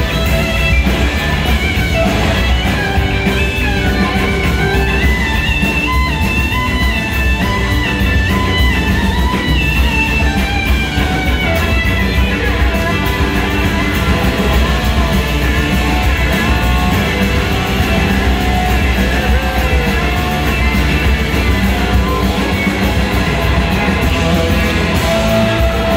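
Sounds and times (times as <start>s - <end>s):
electric guitar lead line: 0.0s - 25.9s
live blues rock band: 0.0s - 25.9s.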